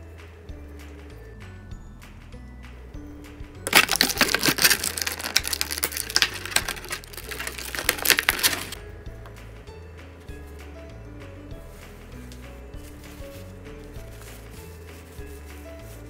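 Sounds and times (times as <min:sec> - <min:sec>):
soft background music: 0:00.0 - 0:16.0
plastic bag crinkling: 0:03.6 - 0:08.8.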